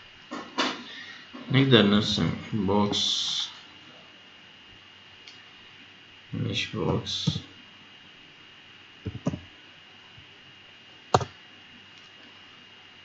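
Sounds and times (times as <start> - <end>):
computer keyboard keystrokes: 9.1 - 9.4.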